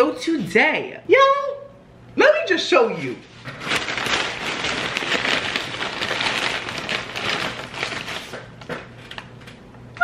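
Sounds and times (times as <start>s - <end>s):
paper bags crinkling: 3.2s - 9.6s.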